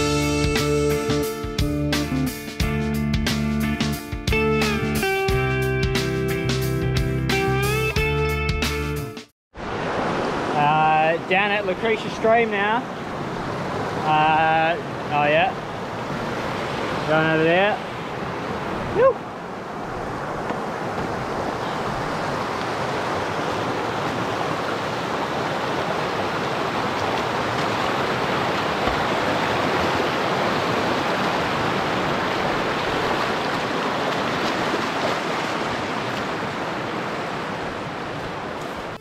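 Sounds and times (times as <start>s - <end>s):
water rushing over stones: 9.6s - 39.0s.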